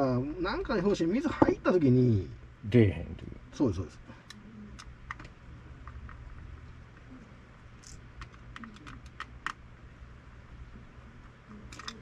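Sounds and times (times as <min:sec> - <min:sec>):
low steady hum: 0:00.0 - 0:12.0
clicks of small metal parts: 0:11.7 - 0:12.0.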